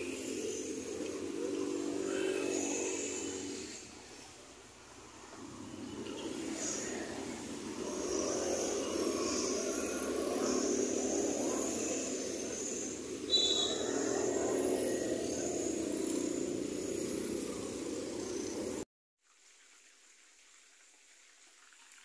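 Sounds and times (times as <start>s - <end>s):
scooter traffic and engine noise: 0.0s - 18.9s
high-pitched squeak: 13.3s - 14.2s.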